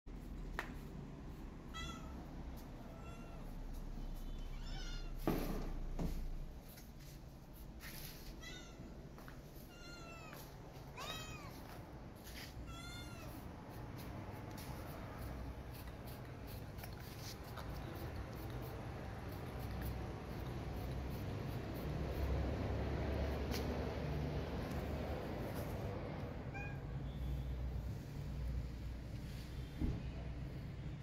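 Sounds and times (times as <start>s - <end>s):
cat meowing: 1.7s - 3.6s, 4.2s - 5.2s, 8.3s - 8.9s, 9.6s - 11.8s, 12.6s - 13.5s, 26.3s - 27.0s.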